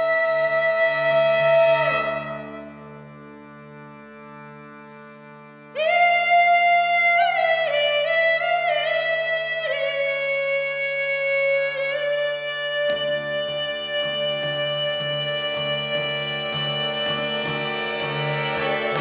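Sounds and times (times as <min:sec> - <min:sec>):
woman singing: 0:00.0 - 0:02.6, 0:05.8 - 0:19.0
harmonium chord: 0:00.4 - 0:06.8, 0:13.2 - 0:19.0
strummed guitar chords: 0:13.0 - 0:19.0.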